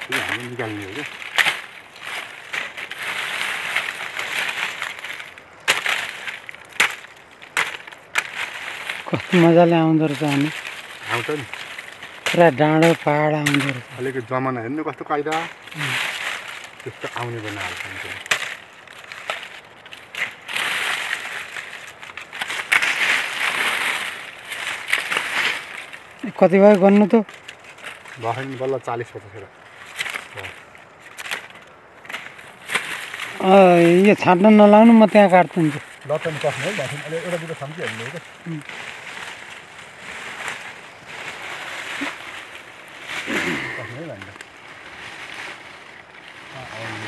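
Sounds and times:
blade chopping branch wood: 0:00.0 - 0:14.2, 0:15.2 - 0:28.5
leafy branches rustling: 0:00.0 - 0:47.0
twigs crackling: 0:00.0 - 0:47.0.

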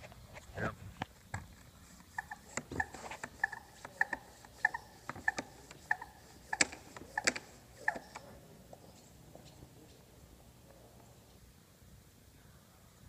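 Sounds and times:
hand pump sprayer clicking and squeaking: 0:01.9 - 0:08.3.

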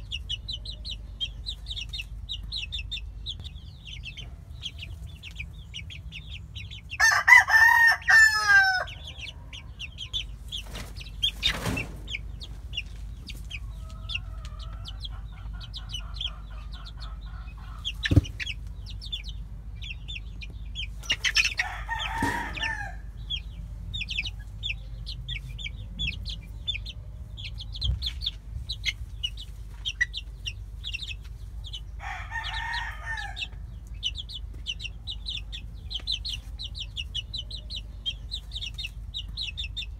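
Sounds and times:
chicks cheeping: 0:00.0 - 0:39.9
rooster crowing: 0:07.0 - 0:09.3, 0:21.6 - 0:23.1, 0:32.0 - 0:33.6.

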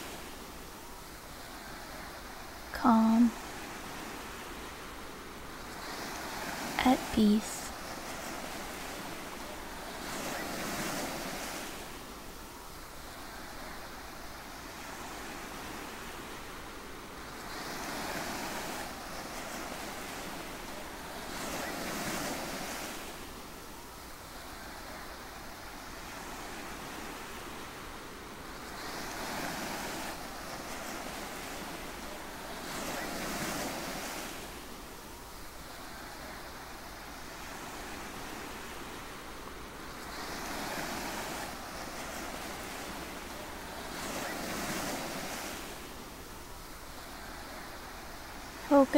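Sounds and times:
ocean waves breaking on beach: 0:00.0 - 0:48.9
surf breaking on beach: 0:39.8 - 0:48.9.

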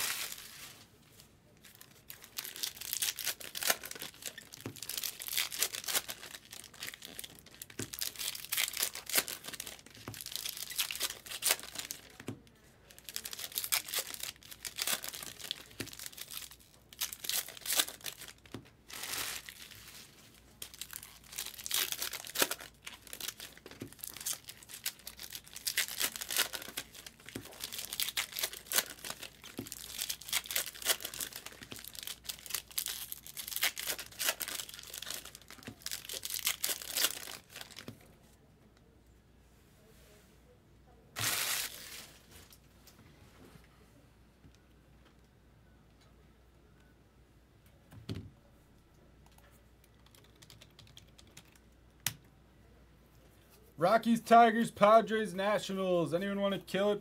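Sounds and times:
plastic wrappers crinkling: 0:00.0 - 0:38.1, 0:41.2 - 0:42.6.

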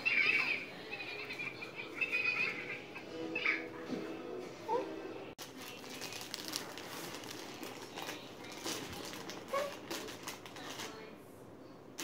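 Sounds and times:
plastic packaging crinkling: 0:05.4 - 0:11.0.

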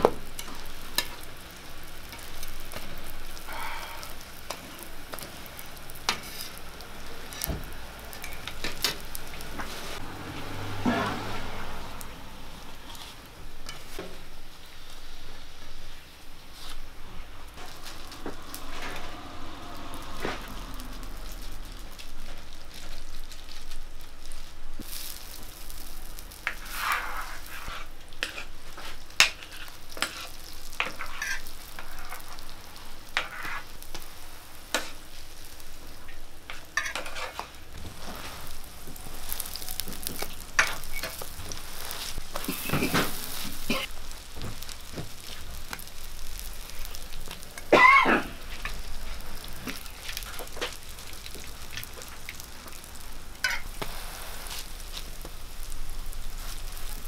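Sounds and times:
pancakes sizzling in oil: 0:00.0 - 0:57.0.

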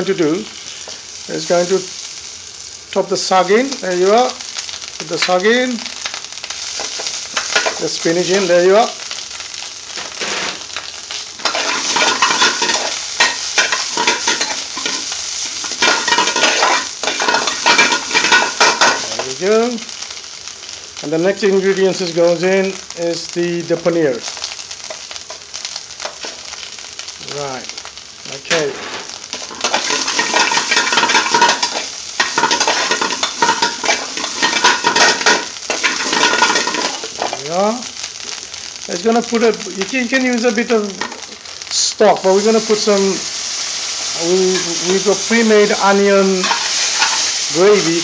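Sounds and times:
vegetables sizzling in oil: 0:00.0 - 0:48.0
metal spoon scraping pan: 0:11.4 - 0:19.0, 0:46.4 - 0:47.3
metal spoon scraping frying pan: 0:11.4 - 0:19.1, 0:28.7 - 0:37.4, 0:46.4 - 0:47.3.

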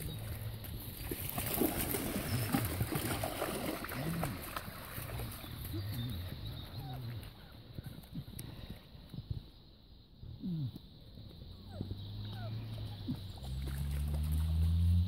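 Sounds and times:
dogs splashing in water: 0:00.0 - 0:06.8, 0:12.7 - 0:15.0.

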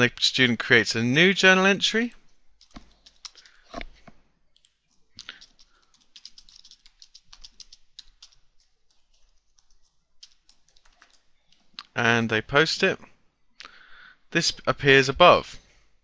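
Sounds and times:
faint keyboard typing: 0:02.0 - 0:12.0.

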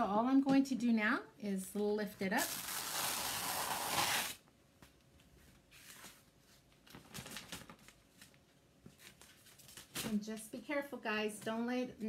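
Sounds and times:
transfer ripping off surface: 0:02.4 - 0:04.4
faint rustling of transfer: 0:04.8 - 0:10.6.

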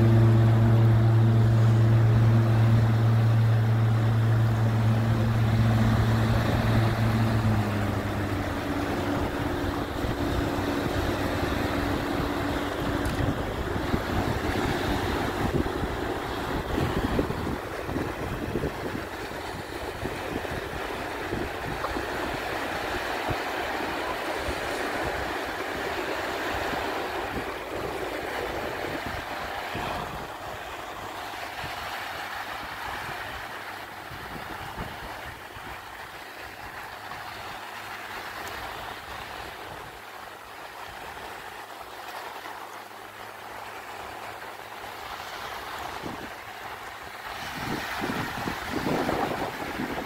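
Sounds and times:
wind on microphone: 0:00.0 - 0:35.8, 0:45.7 - 0:46.4, 0:47.2 - 0:50.0
distant ultralight aircraft engine: 0:00.0 - 0:50.0
surf: 0:00.0 - 0:50.0.

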